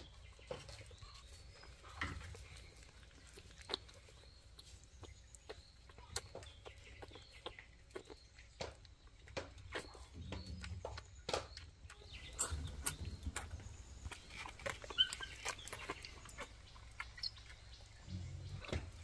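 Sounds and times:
faint animal chirps: 14.2 - 19.0.

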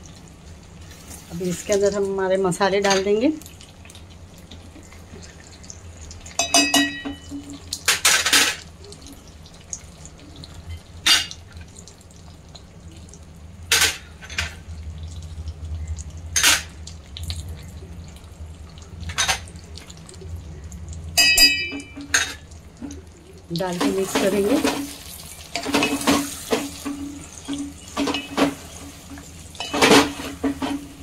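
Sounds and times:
bowls knocking against metal pot: 6.4 - 7.4.

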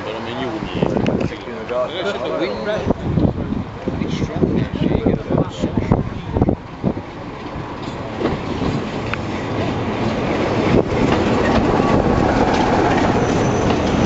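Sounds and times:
diesel locomotive engine: 0.0 - 14.0
wheels on rail joints: 0.0 - 14.0
faint high squeal: 12.9 - 14.0.

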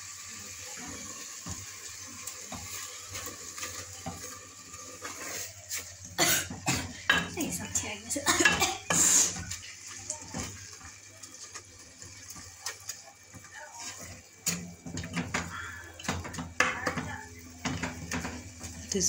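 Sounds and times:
wooden spatula scraping a pot: 1.4 - 19.0.

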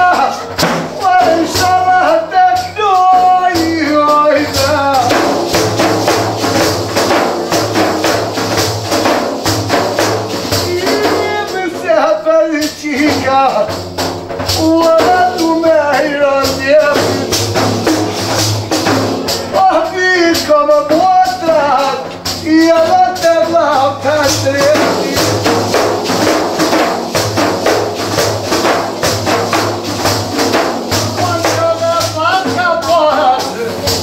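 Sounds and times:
men singing folk song: 0.0 - 5.6, 10.5 - 13.8, 14.5 - 18.6, 19.2 - 25.8, 30.9 - 34.0
frame drums with jingles: 0.0 - 34.0.

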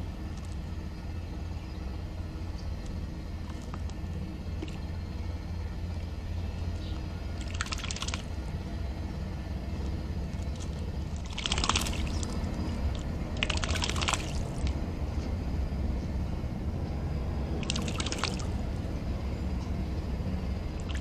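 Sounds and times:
steady low rumble: 0.0 - 21.0
bird wings splashing water: 4.6 - 4.9, 7.3 - 8.4, 10.3 - 14.8, 17.6 - 18.6, 20.7 - 21.0.

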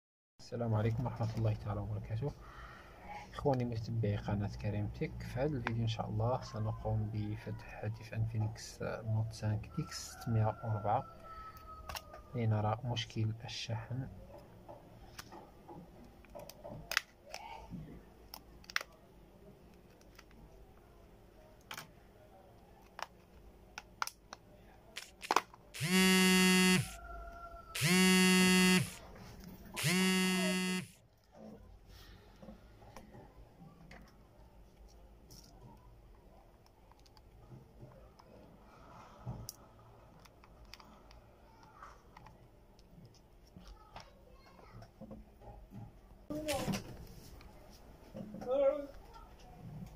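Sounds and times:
plastic parts clicking and tapping: 14.7 - 19.0, 21.6 - 21.9, 22.8 - 26.6, 36.6 - 38.4.

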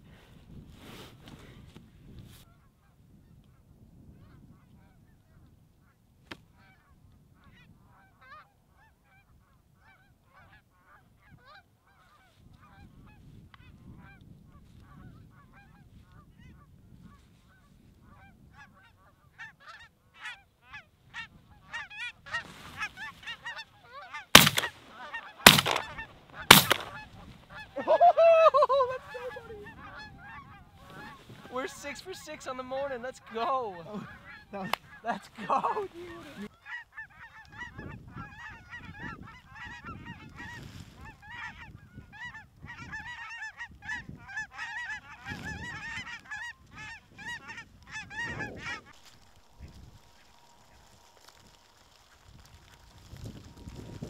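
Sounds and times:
geese honking: 19.4 - 53.7
shotgun shots: 24.4 - 27.0.

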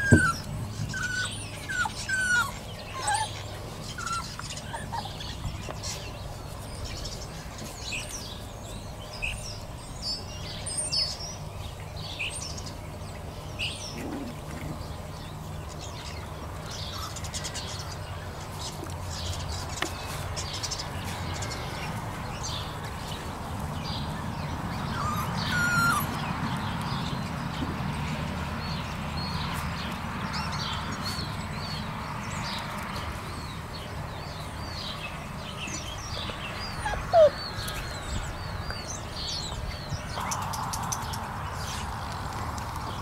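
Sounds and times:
puppies whimpering and yipping: 0.0 - 6.8, 24.4 - 27.2, 35.9 - 40.4
puppy sharp yelp: 36.8 - 37.4.

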